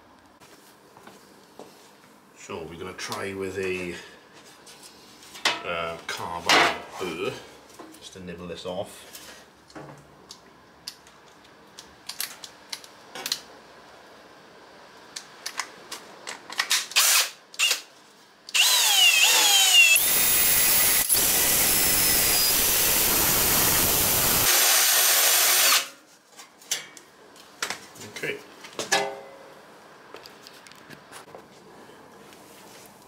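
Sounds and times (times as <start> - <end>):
drill grinding metal: 18.6 - 25.9.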